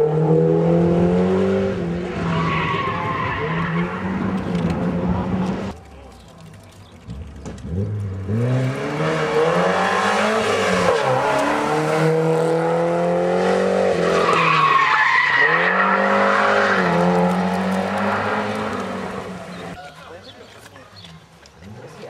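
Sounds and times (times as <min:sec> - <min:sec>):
rally car engine accelerating: 0:07.5 - 0:19.8.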